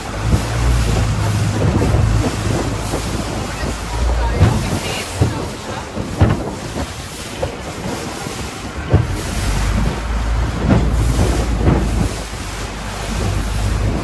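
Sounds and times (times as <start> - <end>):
low rumble: 0.0 - 14.0
water rushing past boat hull: 0.0 - 14.0
wind buffeting microphone: 0.0 - 14.0.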